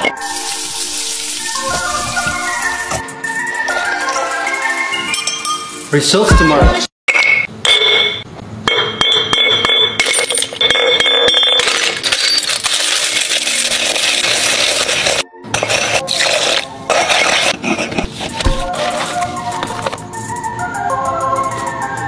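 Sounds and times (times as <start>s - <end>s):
glass shards grinding in stone mortar: 10.0s - 17.8s.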